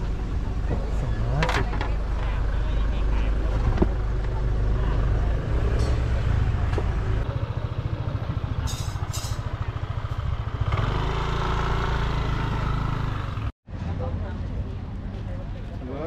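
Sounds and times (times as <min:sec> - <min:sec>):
motorcycle engine running: 0:06.3 - 0:13.5.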